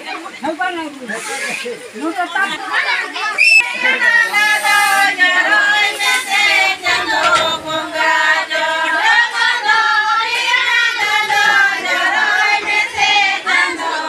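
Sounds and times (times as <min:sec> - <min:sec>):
women singing together: 0:03.6 - 0:14.0.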